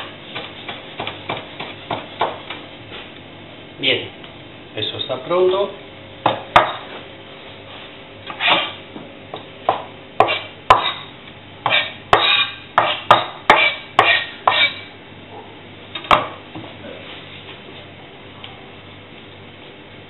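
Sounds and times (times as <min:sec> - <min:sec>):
knife chopping on cutting board: 0:00.0 - 0:02.5, 0:06.2 - 0:06.9, 0:08.3 - 0:08.8, 0:09.7 - 0:14.8.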